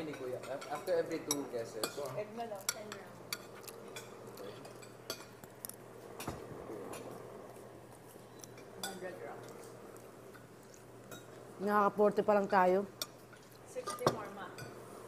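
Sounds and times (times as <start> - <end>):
cutlery clinking on plates: 0.0 - 5.4, 13.0 - 14.8.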